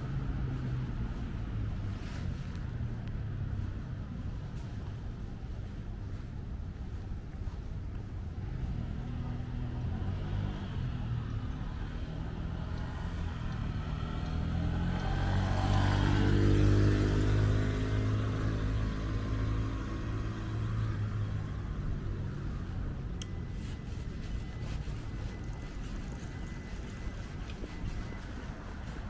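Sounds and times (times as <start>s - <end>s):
vehicle passing close by: 8.4s - 22.9s.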